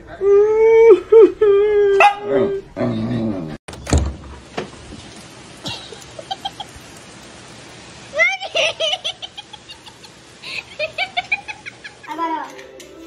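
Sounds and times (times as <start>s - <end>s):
thump: 3.7s - 4.7s.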